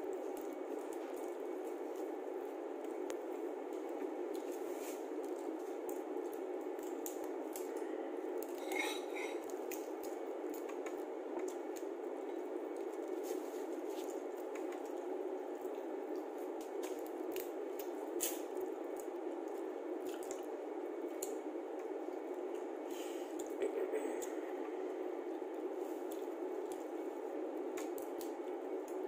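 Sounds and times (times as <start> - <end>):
wet squishes: 12.7 - 22.3.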